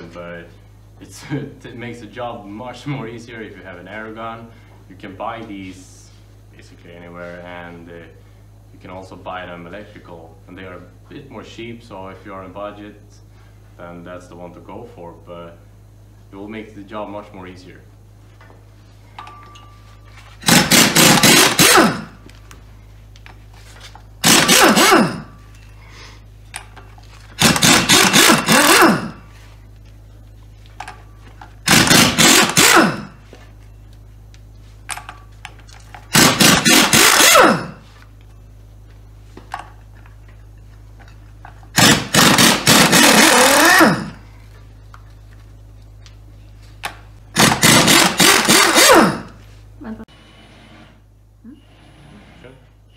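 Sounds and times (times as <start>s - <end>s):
pneumatic impact wrench hammering: 20.4s - 22.2s, 24.2s - 25.4s, 26.6s - 29.2s, 31.6s - 33.2s, 35.8s - 37.8s, 41.7s - 44.2s, 46.8s - 49.4s.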